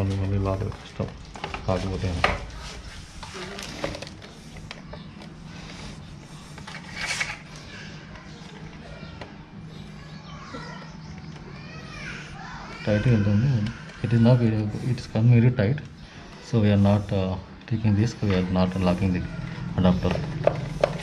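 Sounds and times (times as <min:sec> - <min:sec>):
plastic scrape: 0:02.6 - 0:07.6.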